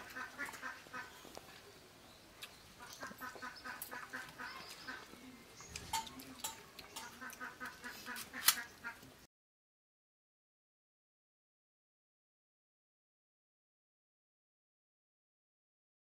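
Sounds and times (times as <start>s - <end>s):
birds calling: 0.0s - 9.2s.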